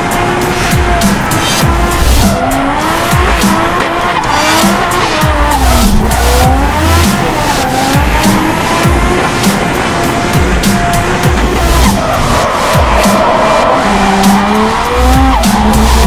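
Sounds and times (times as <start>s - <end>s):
car engine: 0.0s - 16.0s
car tyres squealing: 0.0s - 16.0s
music with steady bass beat: 0.0s - 16.0s.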